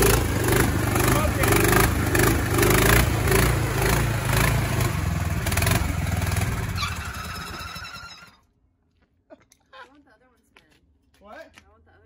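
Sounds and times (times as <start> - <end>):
small gasoline engine revving: 0.0 - 8.4.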